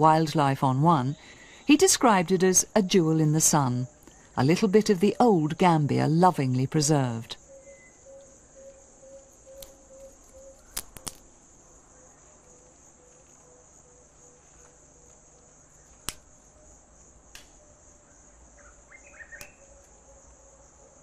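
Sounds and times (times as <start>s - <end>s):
bird chirping: 6.9s - 10.8s, 18.0s - 20.2s
sharp clicks: 9.6s - 11.2s.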